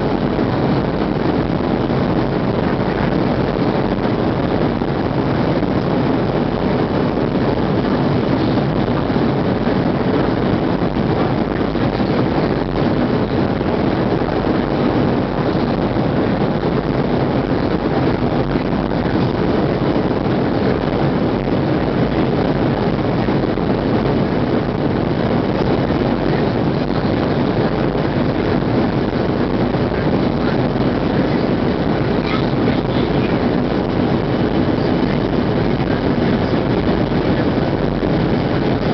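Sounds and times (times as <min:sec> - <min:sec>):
airplane cabin engine rumble: 0:00.0 - 0:38.9.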